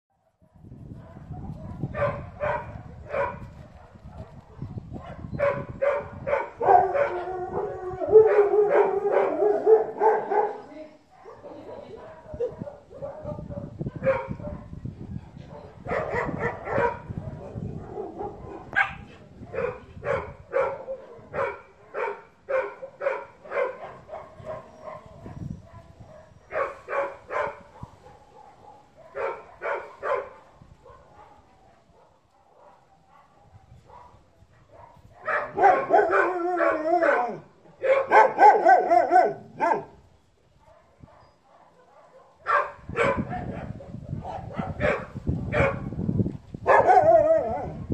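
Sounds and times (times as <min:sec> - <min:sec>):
dog barking: 0:00.2 - 0:14.8, 0:15.4 - 0:40.0, 0:40.6 - 0:45.9, 0:46.6 - 0:47.9
dog howling with wavering pitch: 0:06.5 - 0:10.3, 0:35.5 - 0:37.6, 0:46.7 - 0:47.9.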